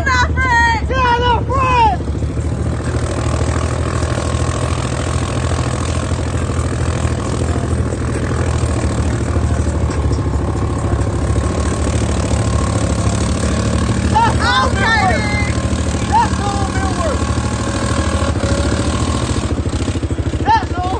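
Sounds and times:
quad engine running: 0:00.0 - 0:20.9.

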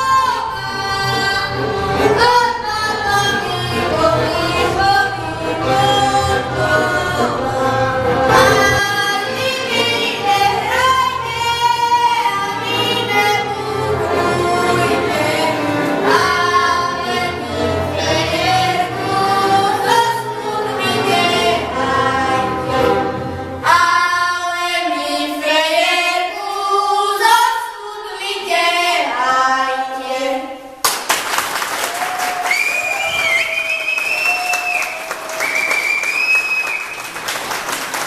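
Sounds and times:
string band playing: 0:00.0 - 0:24.3
girl singing: 0:23.6 - 0:30.6
applause: 0:30.8 - 0:38.0.

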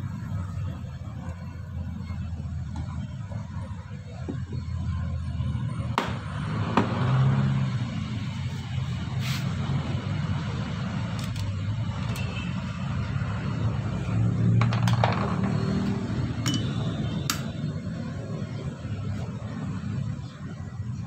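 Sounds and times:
metal tools clinking on metal: 0:12.1 - 0:12.4, 0:16.4 - 0:17.5.

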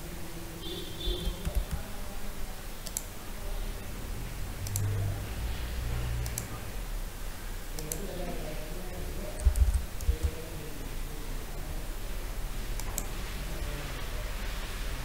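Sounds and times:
low background hum: 0:00.0 - 0:15.0
computer mouse clicking: 0:01.2 - 0:01.9, 0:02.8 - 0:03.1, 0:04.6 - 0:04.9, 0:06.2 - 0:06.6, 0:07.8 - 0:08.1, 0:09.4 - 0:10.4, 0:12.8 - 0:13.1.

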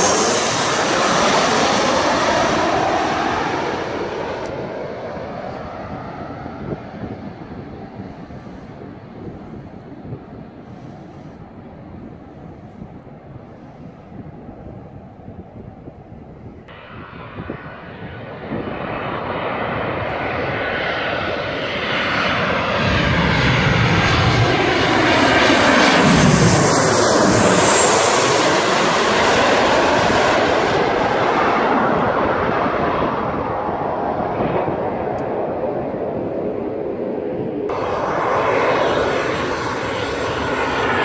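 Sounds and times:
jet airliner passing overhead: 0:00.0 - 0:41.0.

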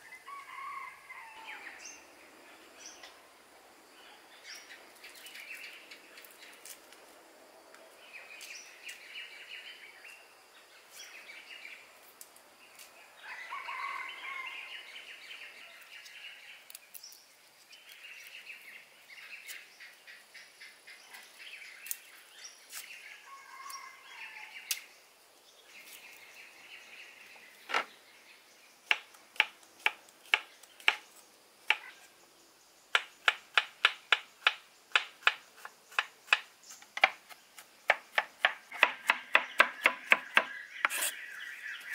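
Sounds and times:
birds chirping and singing: 0:13.0 - 0:29.1, 0:34.2 - 0:41.9
knife chopping on wooden board: 0:37.9 - 0:41.1.

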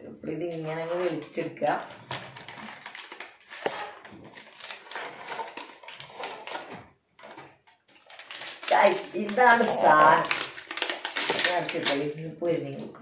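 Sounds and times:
plastic packaging crackling: 0:00.9 - 0:12.8
packaging clicks and snap: 0:10.2 - 0:12.0.

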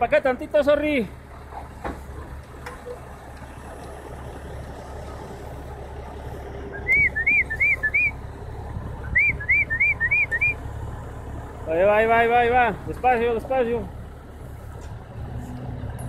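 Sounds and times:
truck engine idling: 0:00.0 - 0:16.0
short whistled notes: 0:06.8 - 0:08.2, 0:09.1 - 0:10.6.

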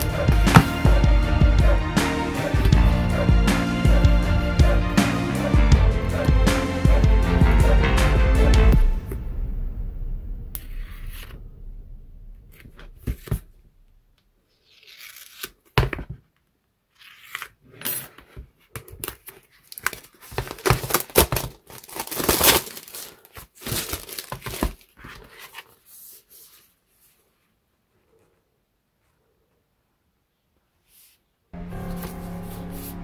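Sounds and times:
plastic shrink-wrap crinkling and tearing: 0:19.0 - 0:25.7.

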